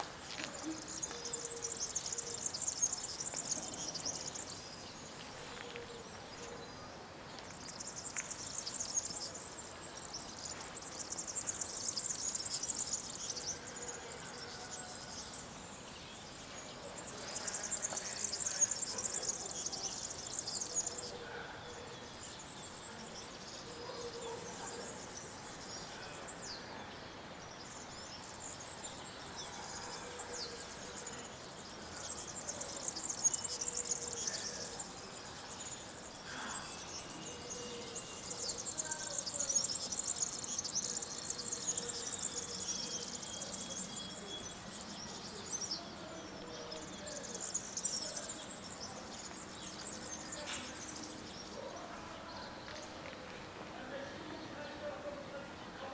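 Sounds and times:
faint background noise: 0:00.0 - 0:55.9
small birds twittering: 0:00.0 - 0:55.9.

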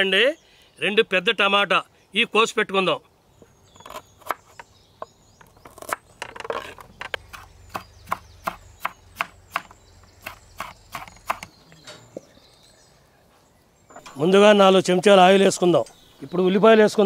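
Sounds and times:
knife chopping on wooden board: 0:05.7 - 0:11.5.

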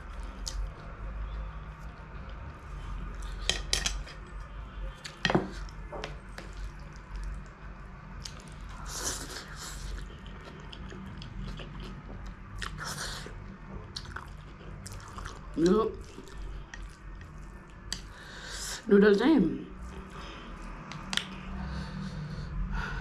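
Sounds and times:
chewing: 0:06.3 - 0:07.6, 0:08.2 - 0:13.3, 0:13.9 - 0:18.2.

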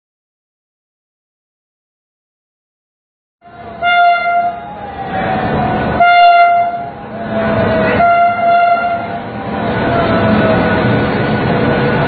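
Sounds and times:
passing train rumble: 0:03.4 - 0:12.0
train horn short blasts: 0:03.8 - 0:04.7, 0:06.0 - 0:07.0, 0:07.8 - 0:09.2.

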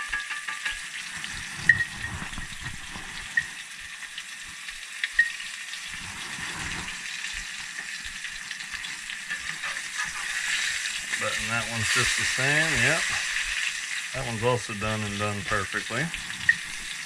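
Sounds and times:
metal spatula clinks: 0:00.0 - 0:00.9
fish sizzling in a skillet: 0:00.0 - 0:17.0.

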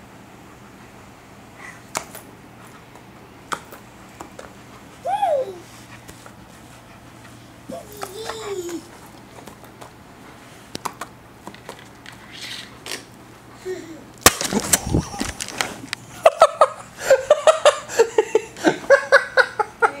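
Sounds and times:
person laughing: 0:13.6 - 0:15.5, 0:16.1 - 0:20.0
camera handling rumble: 0:14.3 - 0:16.0.

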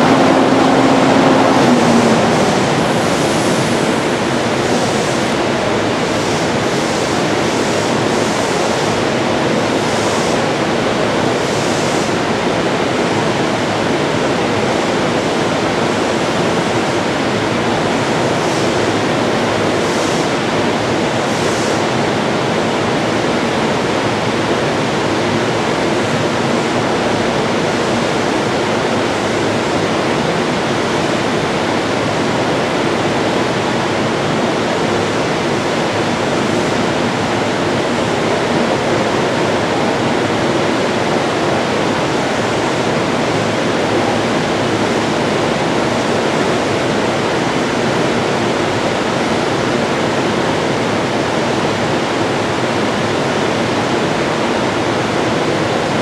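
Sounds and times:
locomotive cooling blowers running: 0:00.0 - 0:56.0.

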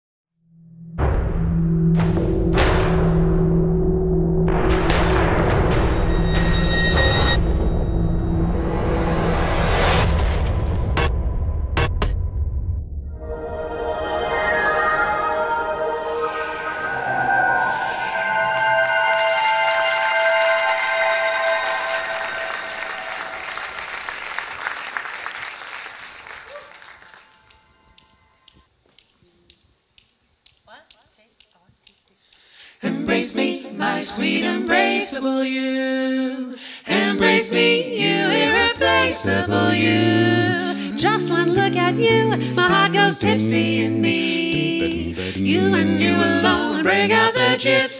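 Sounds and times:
dramatic title music: 0:00.5 - 0:23.6
low drone: 0:00.6 - 0:23.7
sharp percussive hits: 0:04.4 - 0:12.3
audience applauding: 0:18.8 - 0:28.2.

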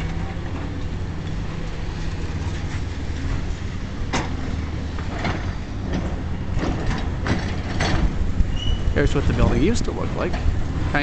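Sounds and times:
wind buffeting microphone: 0:07.9 - 0:11.0.

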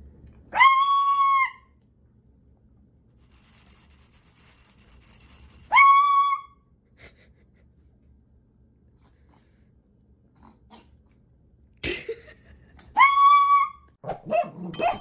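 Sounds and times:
small dog yelling: 0:00.5 - 0:01.7.

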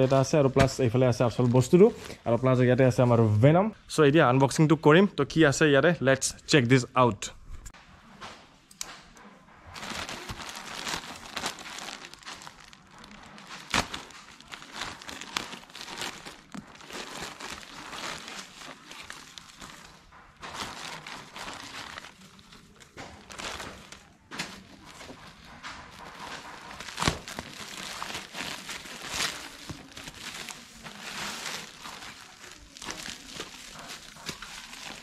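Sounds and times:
plastic bags crinkling: 0:09.6 - 0:35.0.

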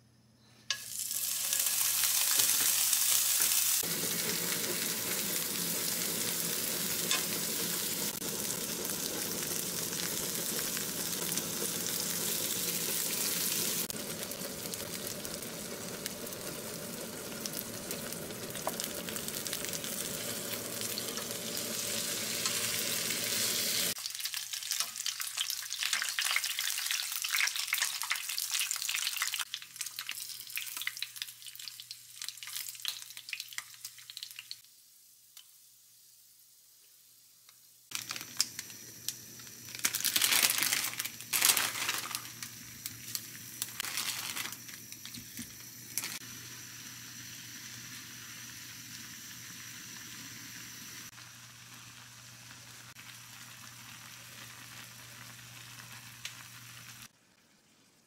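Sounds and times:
oil spattering crackles: 0:00.7 - 0:34.7, 0:37.9 - 0:46.7
meat sizzling in hot oil: 0:00.7 - 0:58.0.

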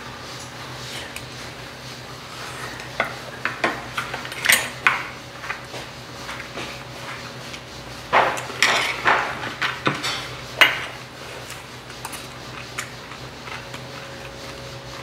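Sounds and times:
metal utensils clinking on bowls: 0:03.6 - 0:05.0.

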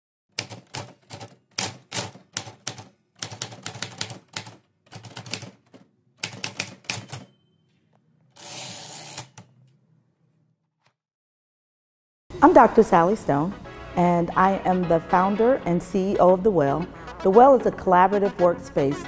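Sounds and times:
typewriter carriage return rasp: 0:00.4 - 0:07.3, 0:08.4 - 0:09.5
typewriter keys striking: 0:00.4 - 0:07.3
typewriter bell ding: 0:06.7 - 0:07.9.

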